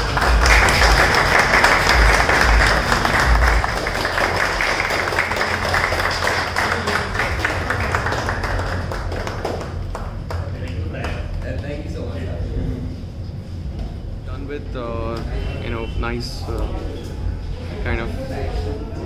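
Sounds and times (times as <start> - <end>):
people clapping: 0.0 - 12.3.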